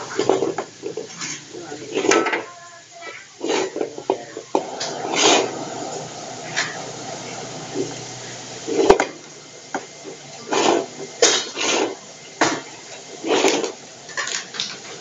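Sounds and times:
utensil scraping rice in metal pan: 10.5 - 12.0.

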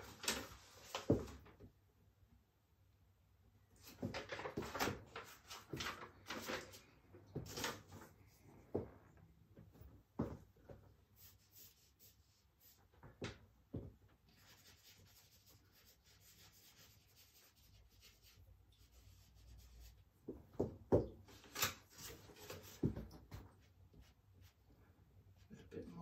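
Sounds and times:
charcoal rubbing on paper: 11.2 - 12.9, 14.3 - 20.1
knocks and thumps: 20.2 - 21.3.

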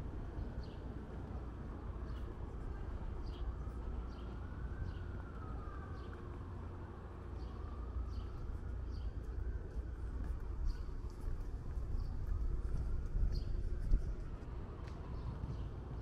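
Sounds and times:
low city rumble: 0.0 - 16.0
siren wailing faintly: 4.3 - 10.7.

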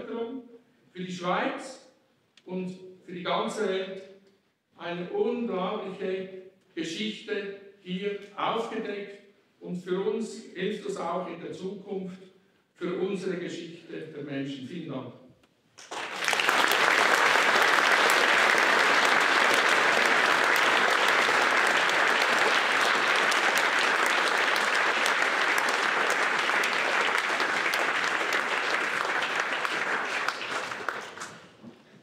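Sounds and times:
audience applauding: 15.8 - 31.8.

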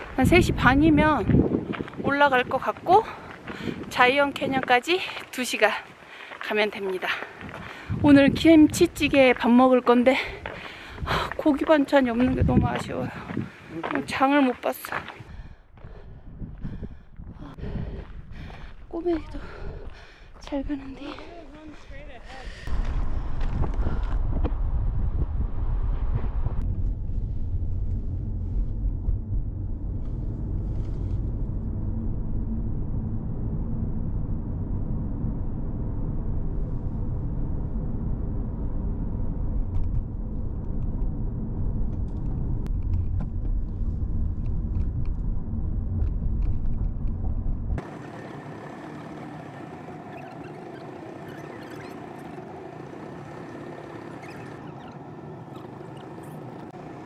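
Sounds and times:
car road noise: 23.4 - 57.0
steady hum with faint tones: 26.2 - 57.0.

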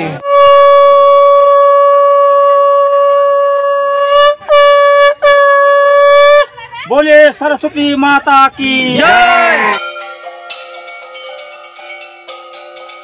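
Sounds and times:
conch shell blasts: 0.1 - 6.4.

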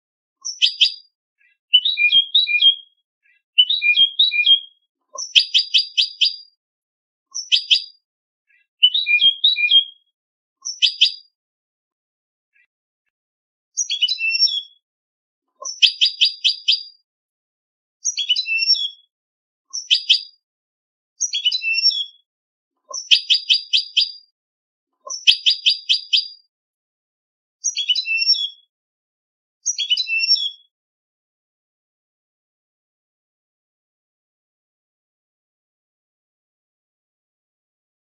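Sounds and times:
goldfinch twittering song: 0.4 - 6.6, 7.3 - 11.3, 13.8 - 14.8, 15.6 - 17.0, 18.0 - 19.1, 19.7 - 20.4, 21.2 - 22.2, 22.9 - 24.3, 25.0 - 26.5, 27.6 - 28.7, 29.7 - 30.7.

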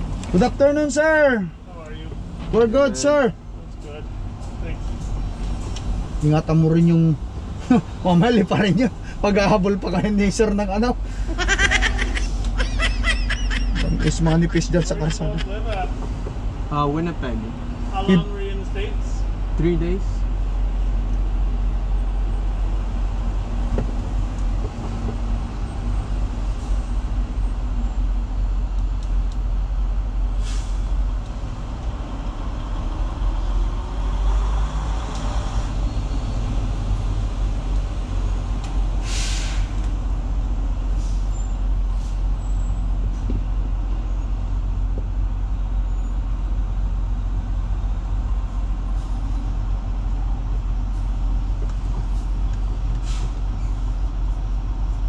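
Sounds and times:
air hisses: 39.0 - 39.8.

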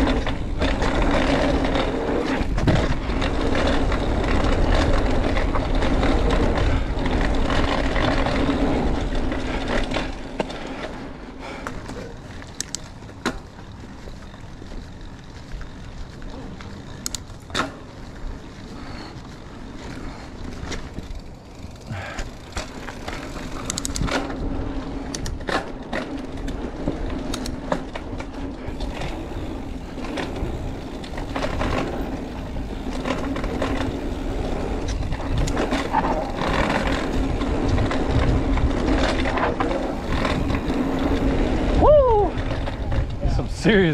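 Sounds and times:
wind rumble on microphone: 0.0 - 10.4, 23.0 - 43.9
bike rattling over bumps: 0.0 - 43.9
tyres humming on dirt: 0.0 - 43.9.

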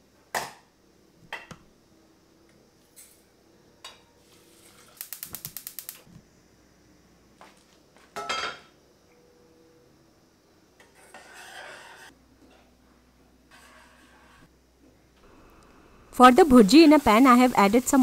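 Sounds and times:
quick run of ticks: 5.0 - 6.0.

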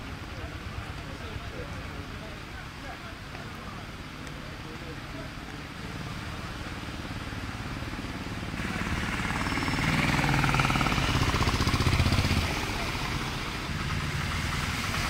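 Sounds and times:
other engines running: 5.4 - 15.0.

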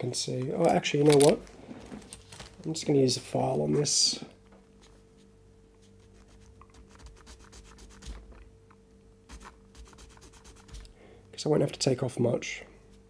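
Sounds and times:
hand file scratching plastic: 9.3 - 10.9.

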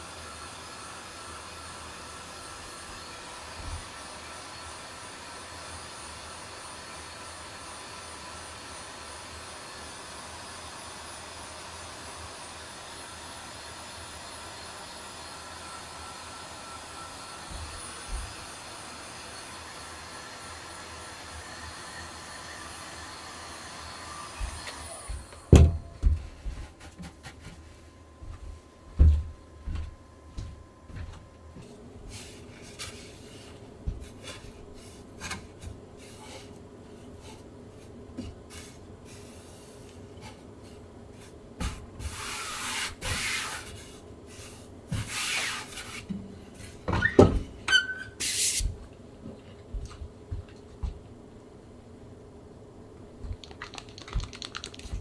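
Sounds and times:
brief squeak: 47.0 - 48.6.

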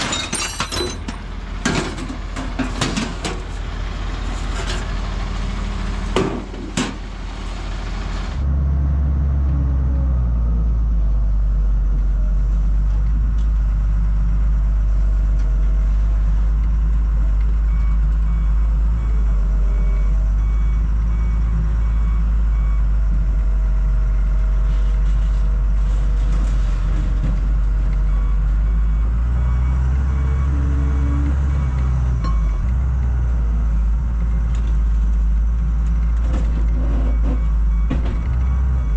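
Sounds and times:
excavator diesel engine running: 0.8 - 38.9
reversing alarm beeping: 17.7 - 22.9, 28.0 - 32.8, 36.6 - 38.9.

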